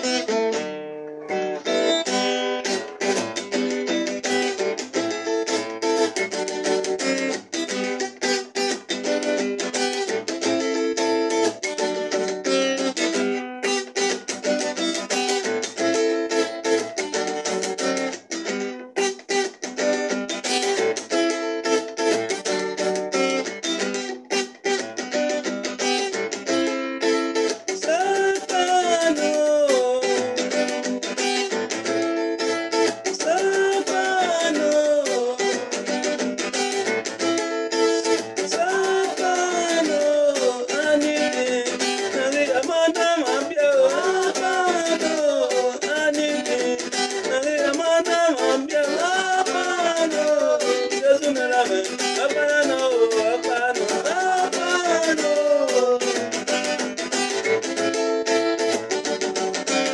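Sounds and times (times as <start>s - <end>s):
acoustic guitar strumming chords: 0.0s - 59.9s
person singing: 27.6s - 31.5s, 33.0s - 36.2s, 37.9s - 57.4s.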